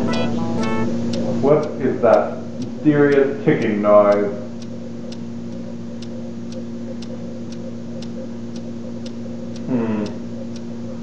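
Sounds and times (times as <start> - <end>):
low steady hum: 0.0 - 11.0
steady ticking: 0.0 - 11.0.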